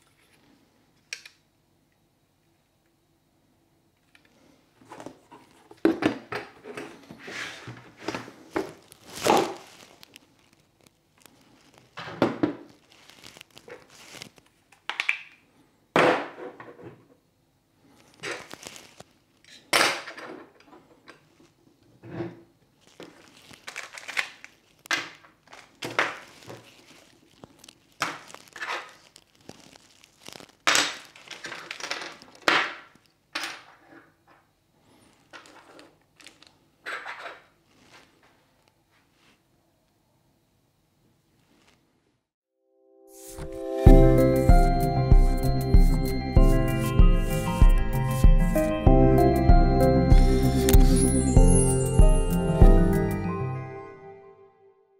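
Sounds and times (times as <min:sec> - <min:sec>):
packaging rustling: 0:07.9 - 0:14.7, 0:17.9 - 0:19.5, 0:22.7 - 0:33.1, 0:35.0 - 0:36.6, 0:37.6 - 0:38.2.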